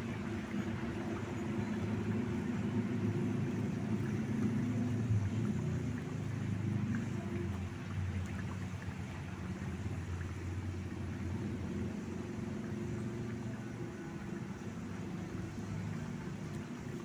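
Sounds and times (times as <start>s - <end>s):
pan boiling with bubbling rumble: 0.0s - 17.0s
faint ticks: 16.4s - 16.8s.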